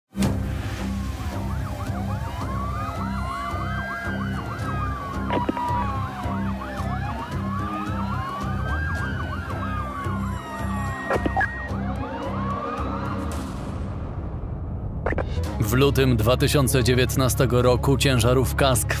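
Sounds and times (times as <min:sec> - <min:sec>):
siren wailing: 0:01.1 - 0:13.5
siren yelping: 0:01.2 - 0:13.4
low rumble: 0:13.0 - 0:16.1.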